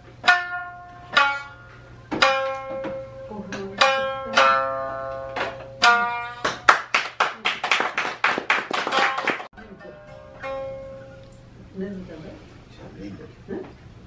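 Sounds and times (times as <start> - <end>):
shamisen plucking: 0.0 - 7.0, 8.7 - 11.6
audience clapping: 6.4 - 9.5.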